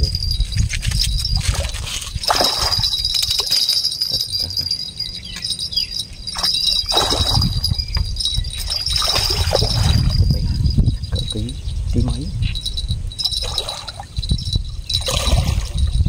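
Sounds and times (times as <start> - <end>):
high-pitched ringing: 0.0 - 16.0
wind rumbling on microphone: 0.0 - 16.0
water splashing: 1.4 - 4.4, 6.3 - 10.2, 13.3 - 14.1, 15.0 - 15.8.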